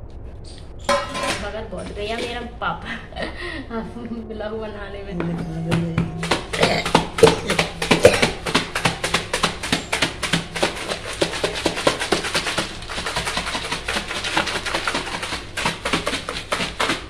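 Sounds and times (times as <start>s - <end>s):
pieces rattling in plastic container: 6.2s - 17.0s.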